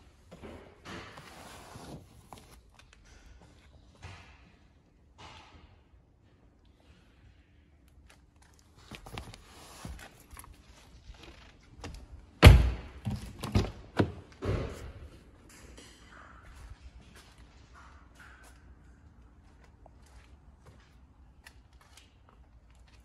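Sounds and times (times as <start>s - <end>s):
car door and body thuds: 12.4s - 14.9s.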